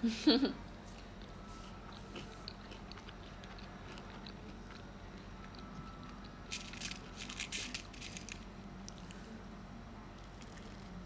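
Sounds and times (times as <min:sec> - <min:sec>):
person chewing food: 0:00.9 - 0:07.4.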